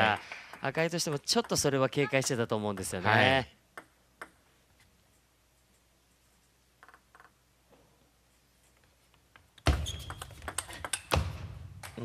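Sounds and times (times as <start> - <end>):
ping pong ball clicks: 3.7 - 4.4, 10.1 - 11.2.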